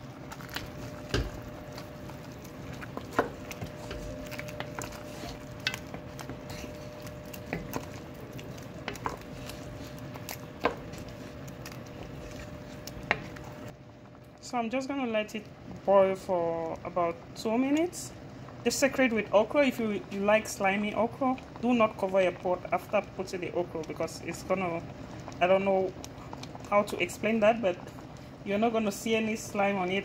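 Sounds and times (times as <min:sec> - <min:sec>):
steady hum: 0:00.0 - 0:30.0.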